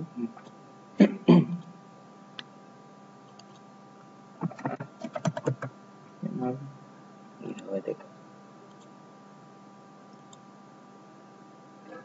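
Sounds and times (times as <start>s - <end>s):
faint electrical hum: 0.0s - 12.0s
keyboard keys tapping: 4.4s - 5.7s.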